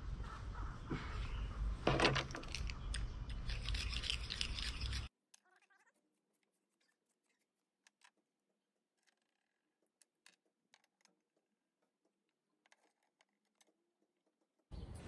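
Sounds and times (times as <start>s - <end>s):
rubbing and scraping: 1.8s - 5.1s.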